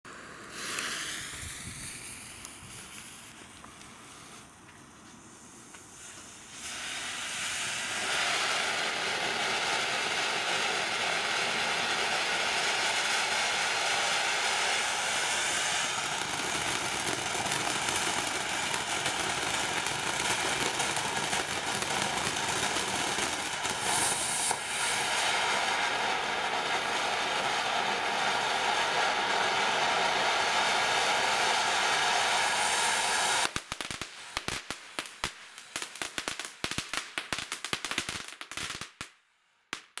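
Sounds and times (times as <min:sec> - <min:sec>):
firework fountain hissing: 0:00.1 - 0:39.1
firework crackling pops: 0:00.1 - 0:40.0.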